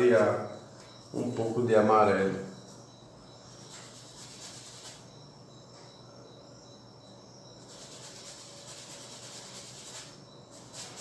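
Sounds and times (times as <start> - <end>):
crickets trilling: 0.0 - 11.0.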